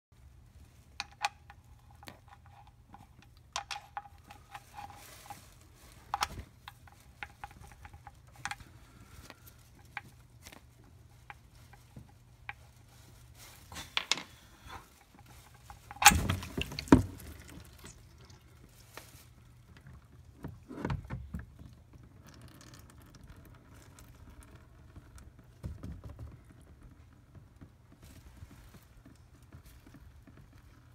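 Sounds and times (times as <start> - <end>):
oil pattering into drain pan: 15.8 - 18.7.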